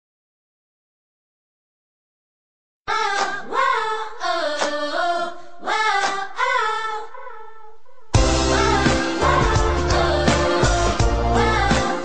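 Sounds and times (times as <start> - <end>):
person singing unaccompanied: 8.2 - 12.0.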